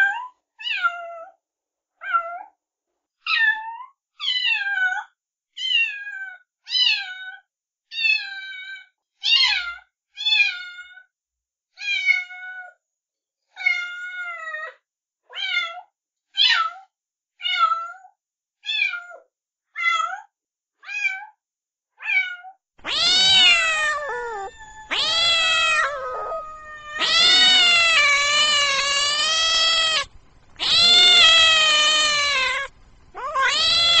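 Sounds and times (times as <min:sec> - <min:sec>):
kitten meowing: 0:22.8 - 0:34.0.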